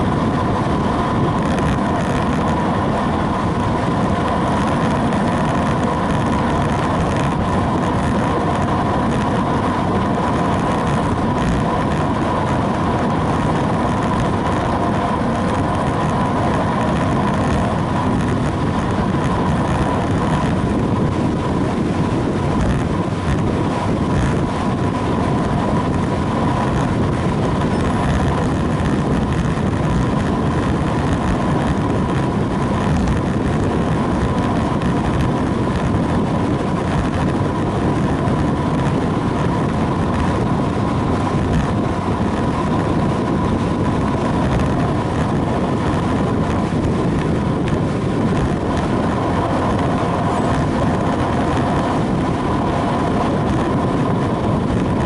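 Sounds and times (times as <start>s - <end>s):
steady tone: 0.0s - 55.0s
tyre noise on asphalt: 0.0s - 55.0s
wind rush over microphone: 0.0s - 55.0s.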